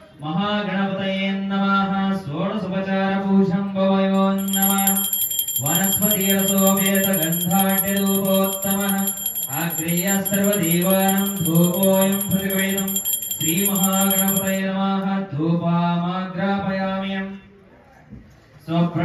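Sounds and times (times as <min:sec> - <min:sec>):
small hand bell ringing rapidly: 0:04.2 - 0:14.6.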